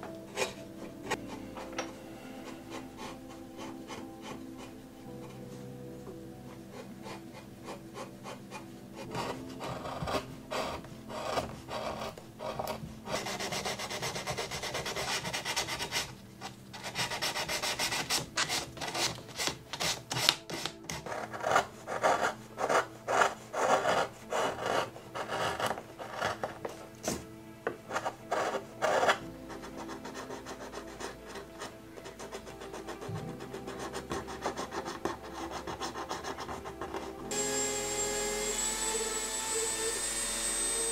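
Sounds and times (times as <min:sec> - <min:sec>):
carving gouges scraping wood: 0:06.8 - 0:37.2.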